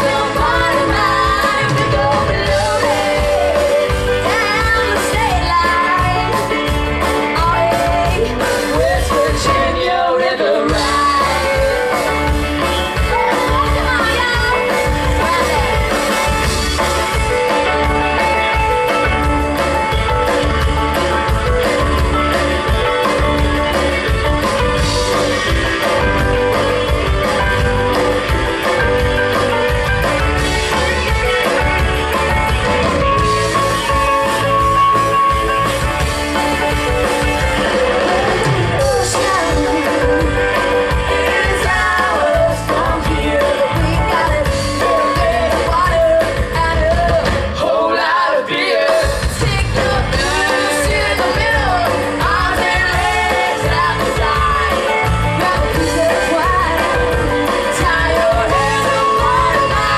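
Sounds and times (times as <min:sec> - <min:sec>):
person singing: 0:00.0 - 0:15.8, 0:37.3 - 0:59.9
bass guitar: 0:00.0 - 0:59.9
drum kit beat: 0:00.0 - 0:59.9
electric guitars: 0:00.0 - 0:59.9.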